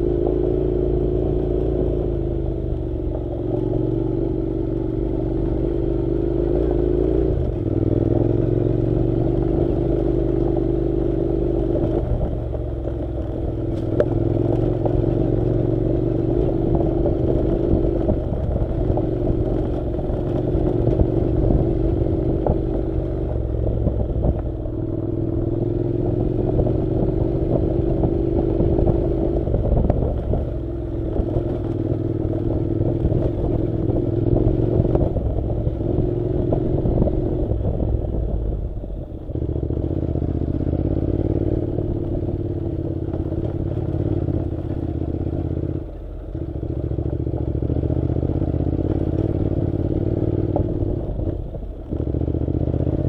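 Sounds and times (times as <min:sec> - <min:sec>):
clatter from rough road: 0:00.0 - 0:53.0
motorcycle engine running: 0:00.0 - 0:53.0.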